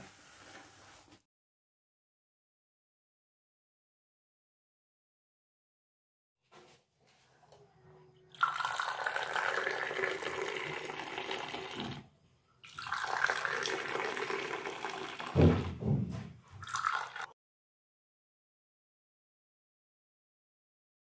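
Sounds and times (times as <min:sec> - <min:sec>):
tea pouring into glasses: 0:08.3 - 0:15.4, 0:16.6 - 0:17.3.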